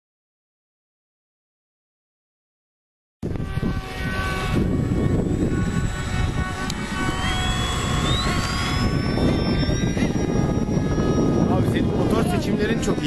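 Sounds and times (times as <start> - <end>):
electric motor and propeller whining: 3.2 - 13.0
wind buffeting microphone: 3.2 - 13.0.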